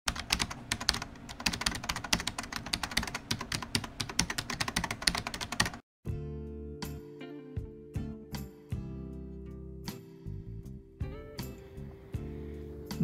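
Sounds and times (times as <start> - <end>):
keyboard typing: 0.1 - 5.8.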